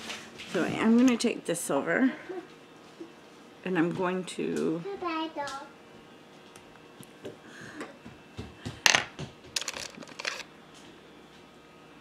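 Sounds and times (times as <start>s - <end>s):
makeup items clicking: 9.6s - 10.4s.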